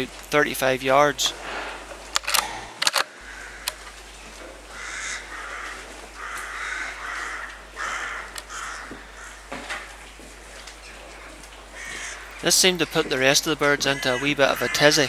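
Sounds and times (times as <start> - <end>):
crows cawing: 3.2 - 4.0, 4.6 - 10.0, 11.1 - 15.0.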